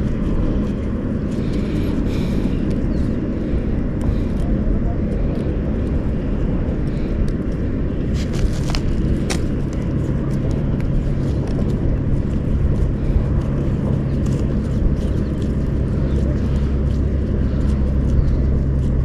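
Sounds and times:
engine drone with hum: 0.0 - 19.0.

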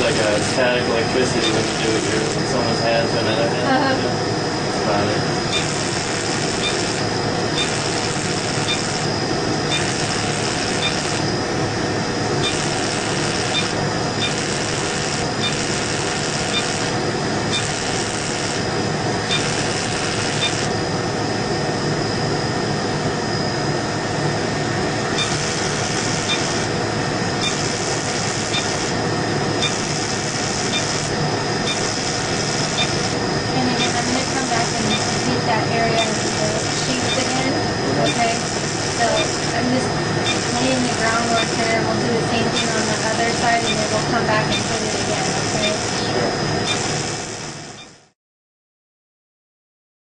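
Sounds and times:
laser machine running: 0.0 - 48.1
laser hiss bursts: 5.5 - 9.1, 9.7 - 11.3, 12.4 - 18.6, 19.3 - 20.7, 25.2 - 26.7, 27.4 - 29.0, 29.6 - 37.5, 38.1 - 41.8, 42.4 - 46.0, 46.6 - 47.6.

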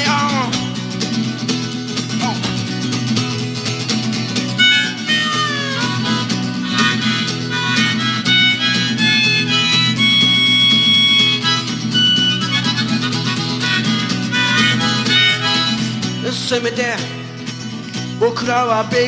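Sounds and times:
strummed acoustic guitar: 0.0 - 19.0
harmonica solo: 4.3 - 16.7.

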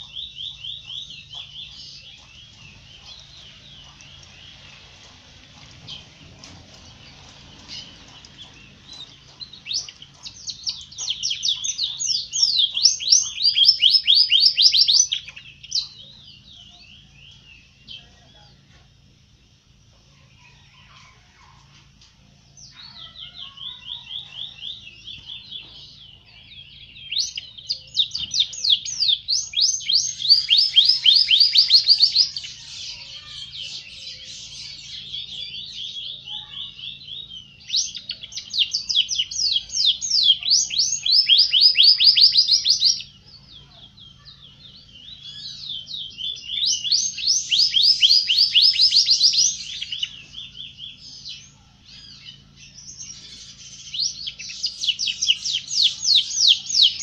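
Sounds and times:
canary singing trills: 0.0 - 57.0.

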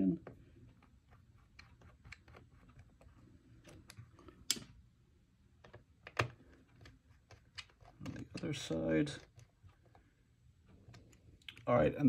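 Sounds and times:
screwdriver clicks and taps: 5.6 - 8.5.

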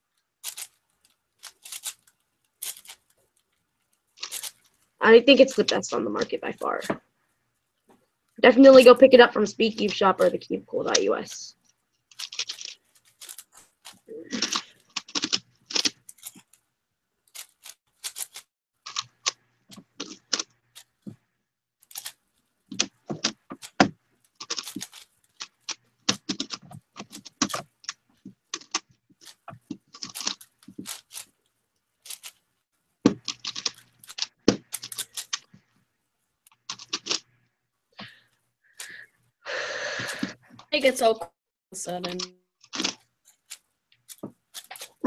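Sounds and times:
plastic puzzle clicking: 0.1 - 7.0, 12.1 - 16.6, 17.3 - 21.2, 21.8 - 31.4, 32.0 - 32.4, 33.1 - 35.5, 36.5 - 37.3, 41.9 - 45.0.

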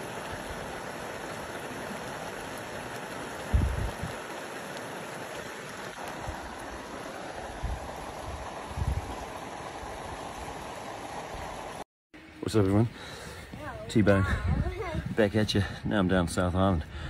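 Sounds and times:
hot spring hissing steam: 0.0 - 11.8.

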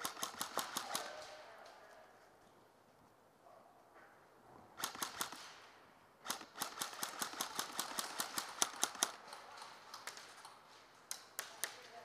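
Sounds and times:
airsoft guns firing: 0.0 - 1.5, 4.8 - 9.4.

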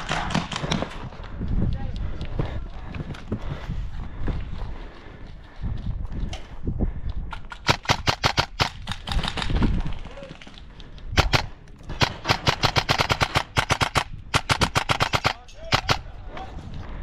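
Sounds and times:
airsoft rifle firing: 7.6 - 9.4, 11.2 - 16.1.

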